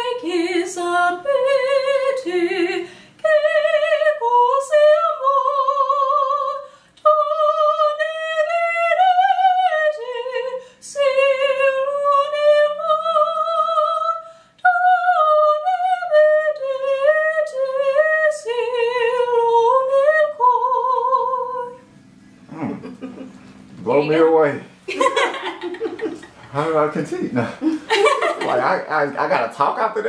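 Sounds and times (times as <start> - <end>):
woman singing operatic soprano: 0.0 - 21.8
singer breathing: 2.8 - 3.2.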